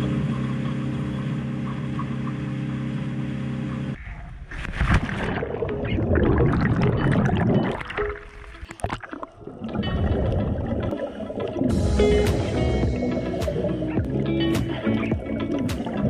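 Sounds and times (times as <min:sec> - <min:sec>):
boat engine running: 0:00.0 - 0:04.0, 0:09.8 - 0:16.0.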